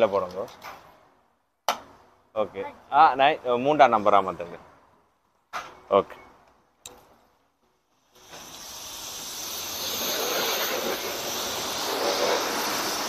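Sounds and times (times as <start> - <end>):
pressure washer spraying water: 8.0 - 13.0.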